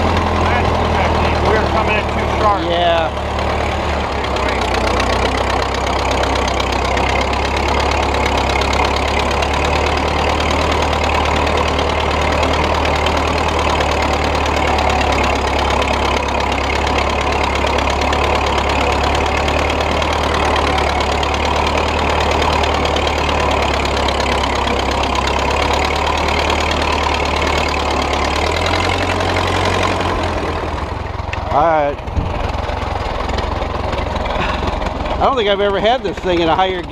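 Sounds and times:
tractor engine running: 0:00.0 - 0:36.9.

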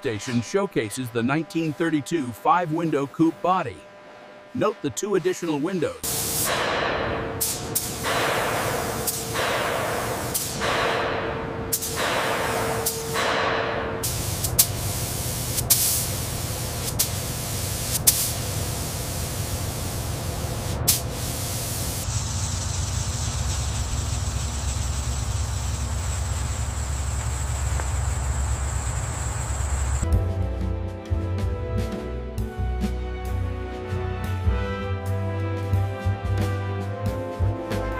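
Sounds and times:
faint high whine: 0:00.0 - 0:30.0
low hum: 0:00.0 - 0:30.1
paint spray gun hissing: 0:06.0 - 0:06.8, 0:07.4 - 0:30.1.

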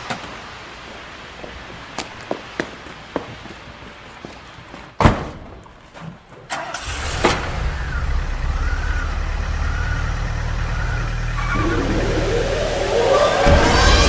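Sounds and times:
car engine starting and idling: 0:06.5 - 0:14.0
rising sweep of sound: 0:11.2 - 0:14.0.

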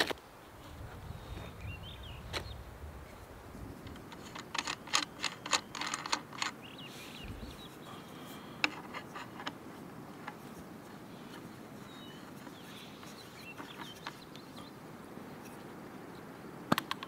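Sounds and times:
bird chirping: 0:00.7 - 0:03.7, 0:04.7 - 0:08.7, 0:11.1 - 0:16.3
air rifle action clicking: 0:03.8 - 0:07.6, 0:16.7 - 0:17.0.

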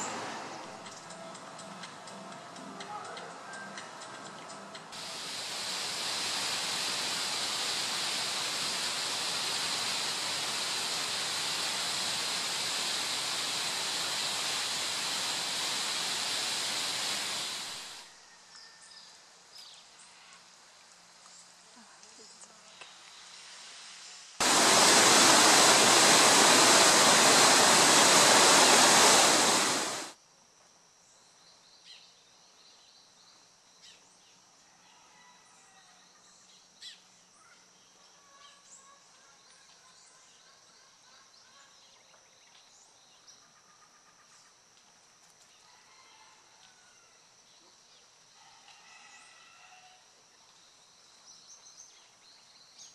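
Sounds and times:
loud rushing hiss: 0:04.9 - 0:18.0, 0:23.2 - 0:30.2
high thin drone: 0:24.4 - 0:30.2.

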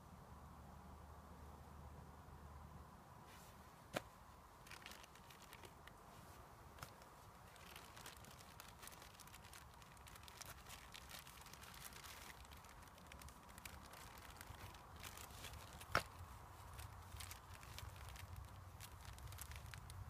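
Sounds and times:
plastic bag crinkling: 0:04.6 - 0:06.0, 0:06.8 - 0:20.0.

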